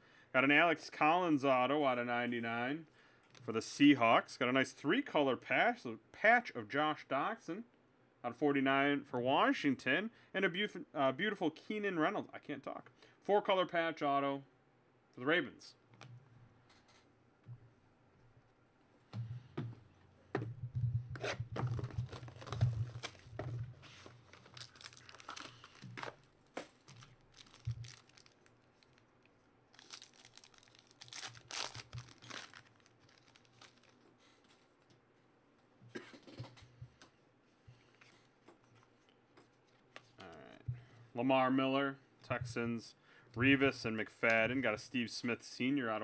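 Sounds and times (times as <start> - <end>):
foil card pack tearing and crinkling: 21.3 - 29.0, 29.7 - 34.0.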